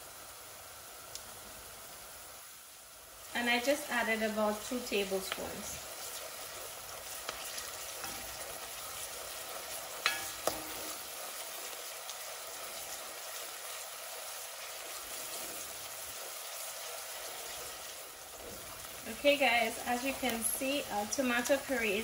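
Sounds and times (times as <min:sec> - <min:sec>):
onions sizzling in hot oil: 0:00.0 - 0:22.0
wooden spoon stirring: 0:05.3 - 0:21.1.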